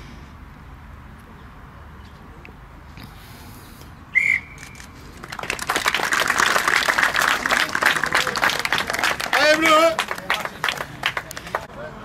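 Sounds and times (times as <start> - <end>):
referee's whistle blast: 4.2 - 4.6
applause: 4.7 - 11.7.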